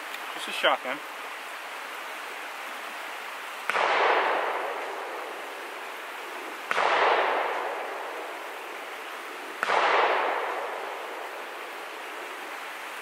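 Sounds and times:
shotgun shots echoing: 0:03.7 - 0:05.2, 0:06.7 - 0:08.2, 0:09.6 - 0:11.2.

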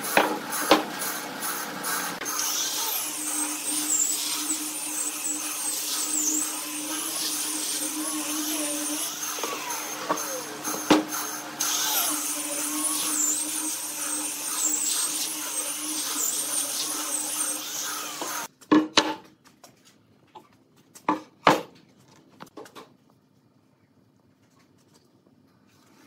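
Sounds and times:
angle grinder sanding wood: 0:00.0 - 0:18.5.

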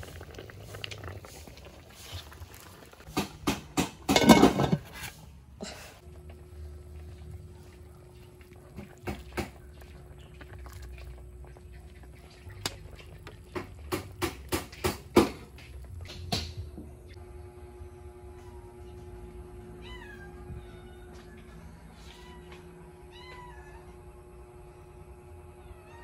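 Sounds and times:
faint steady hum: 0:04.2 - 0:14.4, 0:15.2 - 0:26.0.

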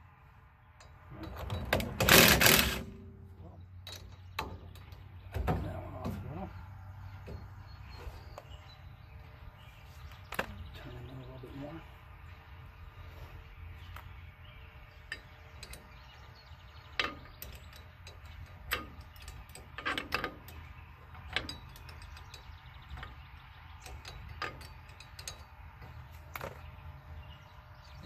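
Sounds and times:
wrench clicking on a bolt: 0:16.9 - 0:25.6.

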